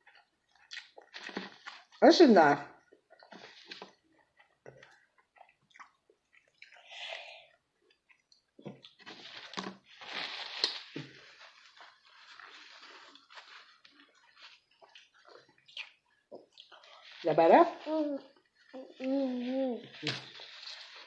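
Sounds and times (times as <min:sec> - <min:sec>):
chewing and crunching: 0:00.0 - 0:02.0, 0:02.8 - 0:07.0, 0:10.6 - 0:17.2
paper napkin rustling: 0:09.0 - 0:15.0.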